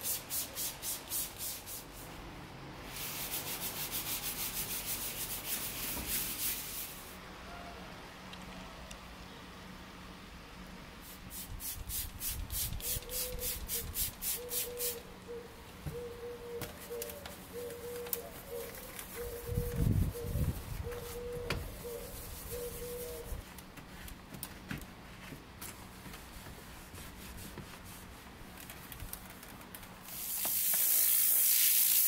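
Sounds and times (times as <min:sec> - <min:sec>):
brush scrubbing car trim: 0:02.9 - 0:07.1, 0:26.2 - 0:28.4.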